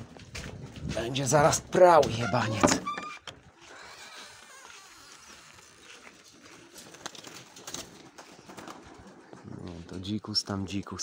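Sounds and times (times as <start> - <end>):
footsteps and handling rustle: 3.1 - 11.0.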